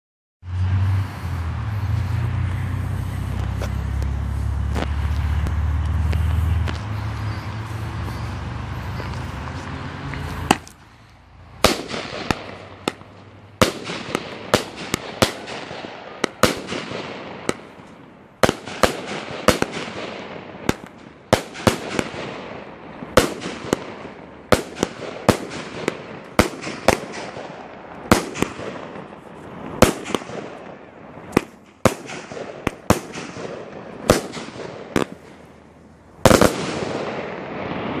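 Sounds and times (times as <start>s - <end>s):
firework bangs with hiss: 0.6s - 10.8s, 11.4s - 38.0s
loud firework burst: 11.5s - 17.8s, 18.4s - 35.3s, 36.2s - 38.0s.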